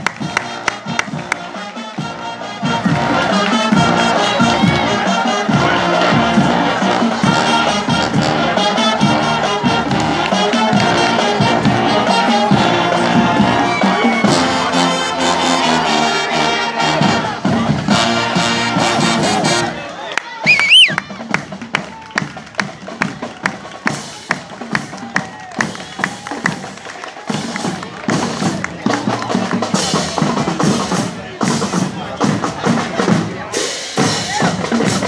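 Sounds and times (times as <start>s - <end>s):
crowd noise: 0.0s - 35.0s
marching band brass: 0.0s - 35.0s
steady drum beat: 20.5s - 35.0s.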